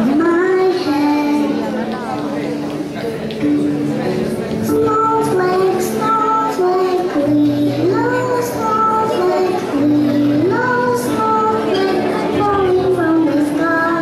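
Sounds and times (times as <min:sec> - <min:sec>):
instrumental accompaniment: 0:00.0 - 0:14.0
children singing: 0:04.6 - 0:14.0.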